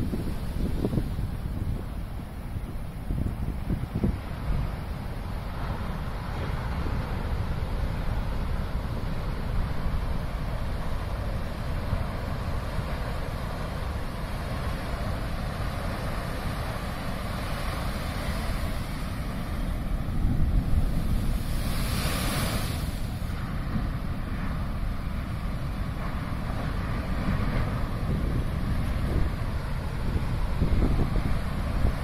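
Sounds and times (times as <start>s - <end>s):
wind buffeting microphone: 0.0s - 32.0s
surf breaking on rocks: 14.6s - 25.1s.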